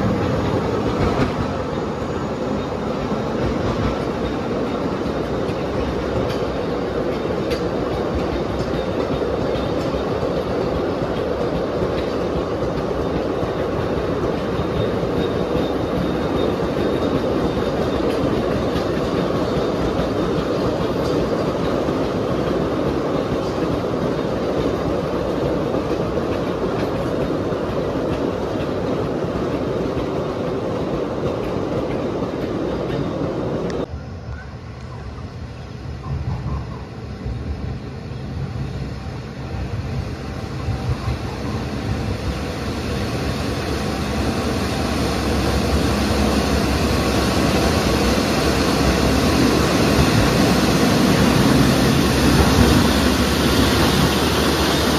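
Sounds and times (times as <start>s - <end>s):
diesel locomotive running: 0.0s - 54.9s
wagon wheels clattering on rail: 3.2s - 33.8s.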